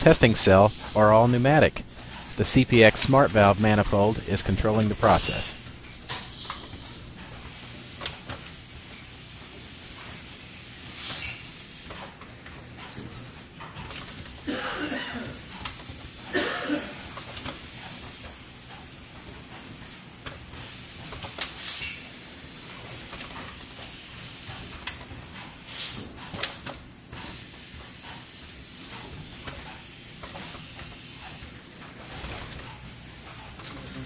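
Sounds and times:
steady background noise: 0:00.0 - 0:34.0
short air hisses: 0:25.7 - 0:26.1.

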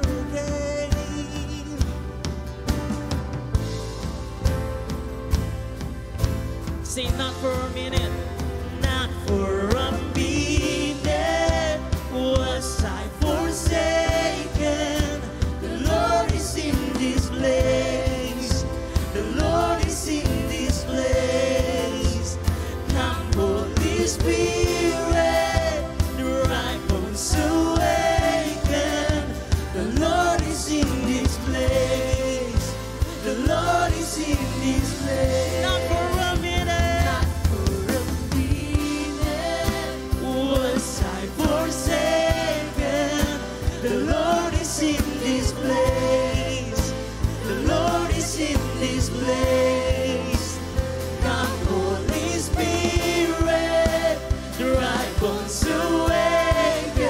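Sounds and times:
man singing into microphone: 0:00.0 - 0:02.2, 0:06.8 - 0:57.0
bass: 0:00.0 - 0:57.0
drum beat: 0:02.3 - 0:43.4.

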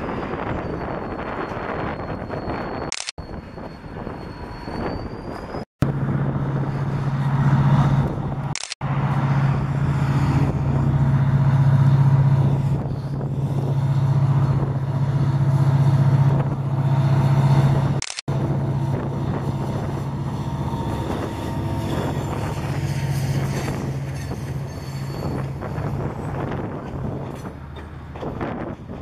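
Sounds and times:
diesel locomotive engine droning: 0:00.0 - 0:29.0.

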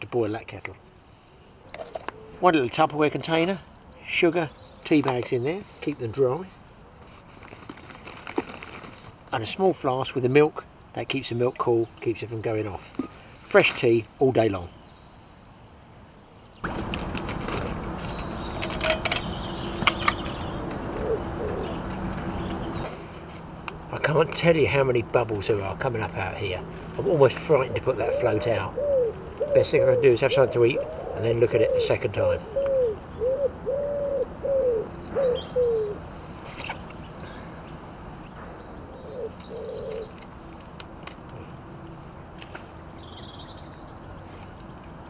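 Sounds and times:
bird calling: 0:17.2 - 0:23.1, 0:27.0 - 0:41.6
pigeon cooing: 0:20.7 - 0:22.8, 0:27.8 - 0:36.0, 0:38.9 - 0:40.2.

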